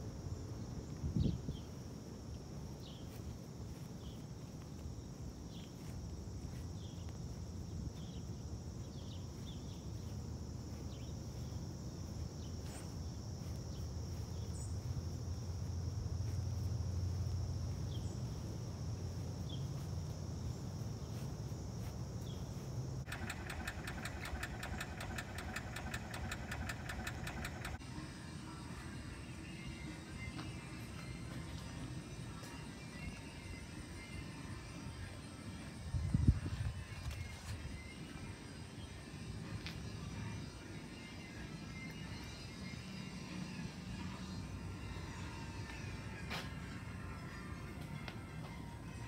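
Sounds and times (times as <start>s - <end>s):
high-pitched insect drone: 22.6s - 31.3s
fast pulsing music: 23.1s - 27.8s.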